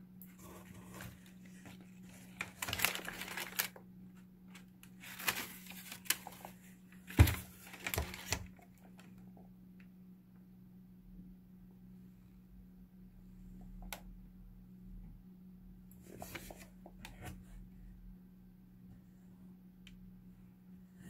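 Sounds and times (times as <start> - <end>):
steady low hum: 0.0 - 21.0
tissue paper rustling and crinkling: 0.4 - 3.8, 4.5 - 8.6.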